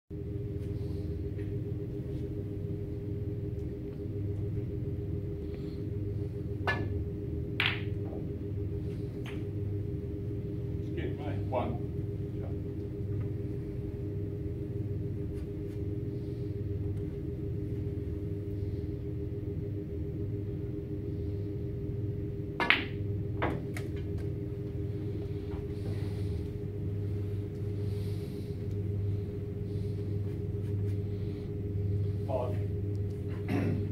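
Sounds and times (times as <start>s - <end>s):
low room hum: 0.1s - 33.9s
cue striking snooker ball: 6.6s - 7.0s, 7.6s - 8.2s, 22.6s - 24.1s
snooker balls clicking: 7.6s - 8.2s, 22.6s - 24.4s.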